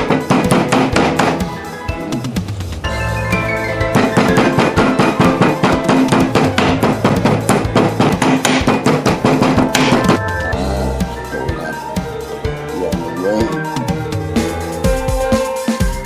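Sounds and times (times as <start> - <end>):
music with fast percussive beat: 0.0 - 16.0.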